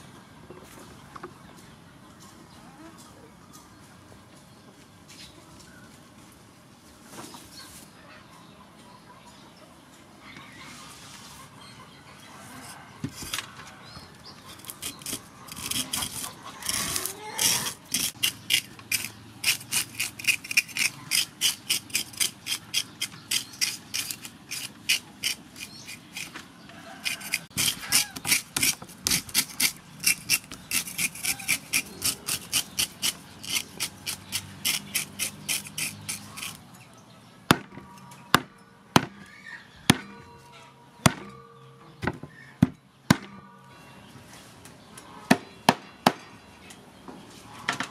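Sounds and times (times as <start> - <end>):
fish scaler scraping scales: 14.5 - 36.6
cleaver chopping on wooden block: 41.0 - 41.3.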